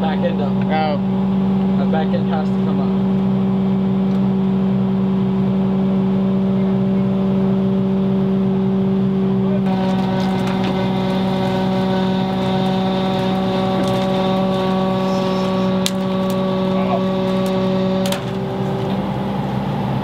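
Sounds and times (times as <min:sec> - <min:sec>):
excavator diesel engine running: 0:09.1 - 0:20.0.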